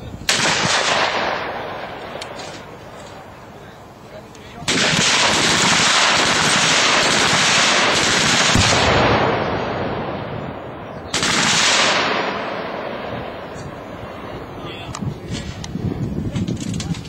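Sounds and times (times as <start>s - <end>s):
machine gun firing bursts: 0.3s - 2.1s, 4.6s - 9.5s, 11.1s - 12.5s.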